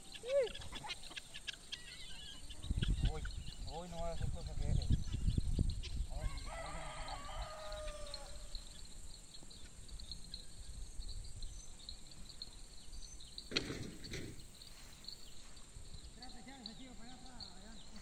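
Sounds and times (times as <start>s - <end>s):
animal calling: 0.0s - 5.0s
faint high chirping: 0.0s - 18.0s.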